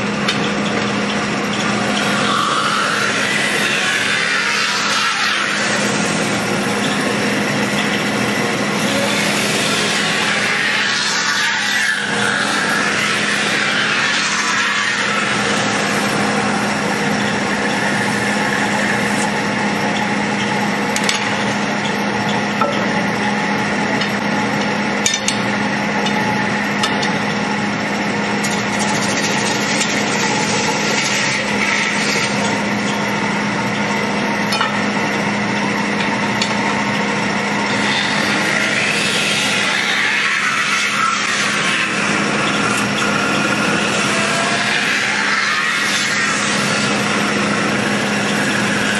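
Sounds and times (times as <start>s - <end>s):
lathe humming: 0.0s - 48.9s
spinning tool scraping metal: 28.4s - 33.0s.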